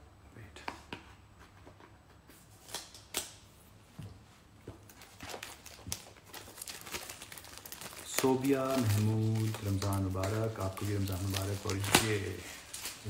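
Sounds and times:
cardboard rustling: 5.0s - 13.0s.

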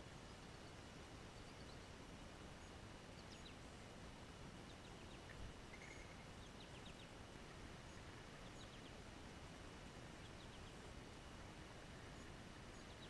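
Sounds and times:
low background noise: 0.0s - 13.0s
songbird high chirps: 0.1s - 1.9s, 2.6s - 3.8s, 4.6s - 7.2s, 7.8s - 9.0s, 10.2s - 10.9s, 12.0s - 13.0s.

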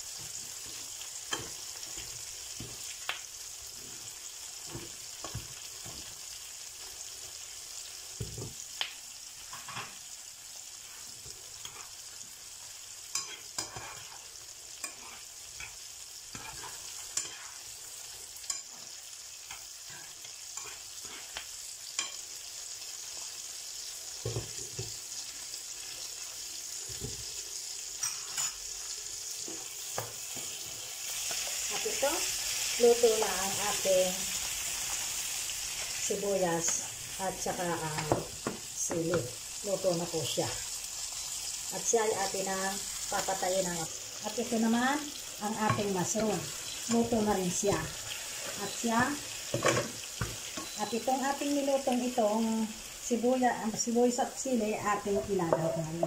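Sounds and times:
mushrooms sizzling in a frying pan: 0.0s - 56.0s
wooden spatula scraping a pan: 13.2s - 14.3s.

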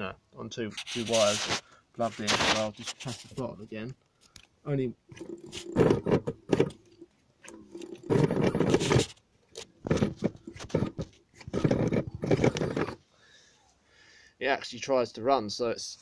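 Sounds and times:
electric hub motor noisy bursts: 5.1s - 6.8s, 7.5s - 9.2s, 9.8s - 13.0s.

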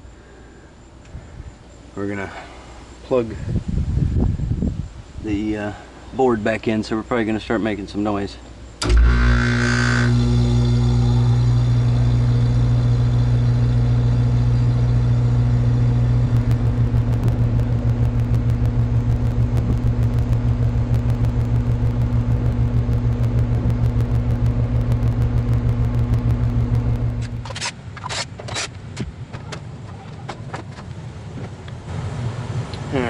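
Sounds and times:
condenser fan whirring: 8.8s - 27.5s
fast pulsing flutter: 8.8s - 27.5s
compressor humming: 8.8s - 27.7s.

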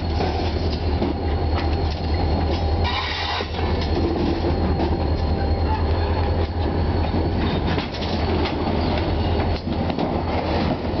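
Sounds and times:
freight train rumble: 0.0s - 11.0s.

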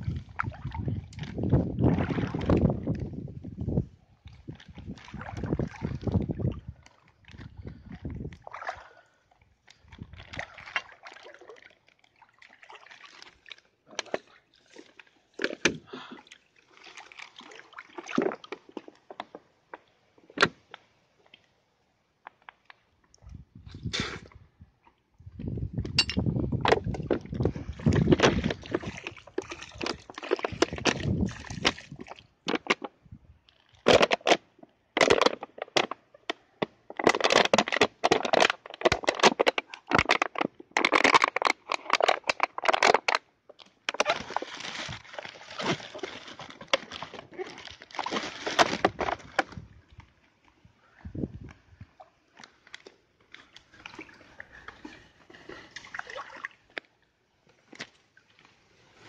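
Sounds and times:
plastic bottle crushed by hand: 26.0s - 32.9s, 33.8s - 49.6s.

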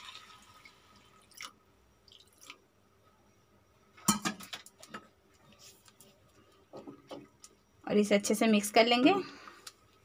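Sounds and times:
kitchenware clattering: 4.0s - 4.6s.

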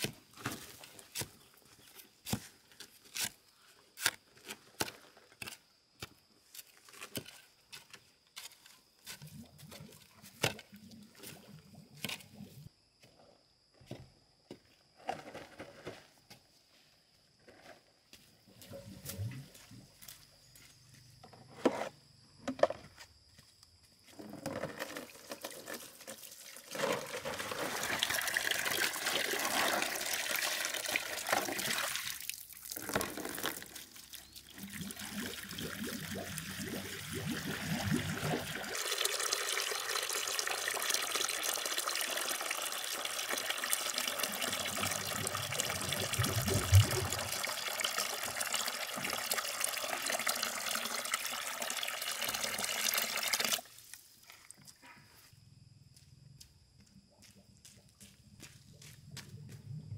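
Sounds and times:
water splashing into plastic basin: 24.8s - 54.4s.

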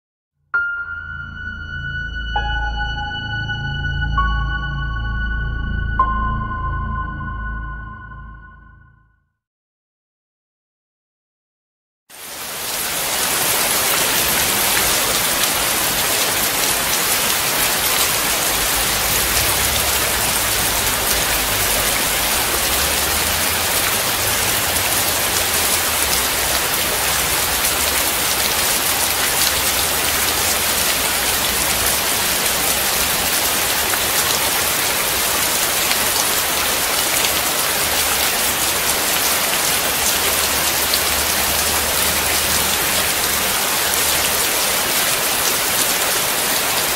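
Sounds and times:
rain splashing on wet surface: 12.1s - 46.9s.

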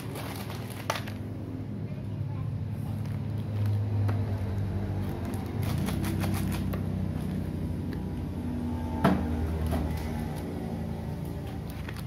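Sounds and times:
plastic wrapper crinkling: 0.0s - 1.3s, 2.9s - 7.4s, 11.2s - 12.0s.

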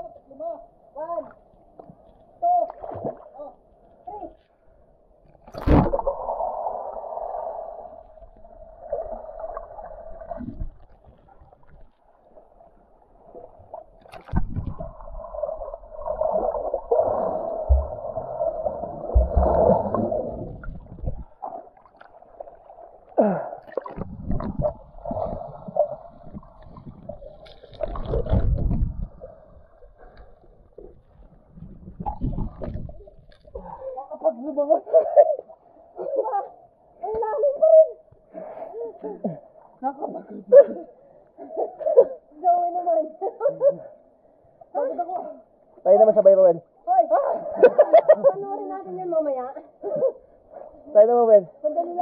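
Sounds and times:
underwater river churning: 1.5s - 34.1s.

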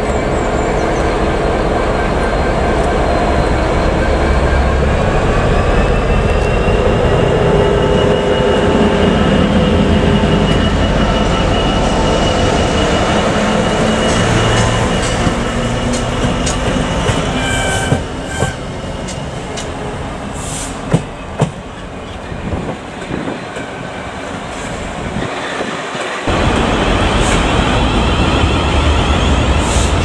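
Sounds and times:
diesel locomotive engine humming: 0.0s - 30.0s
louder train: 0.0s - 30.0s
wheel squeal: 16.2s - 18.6s.

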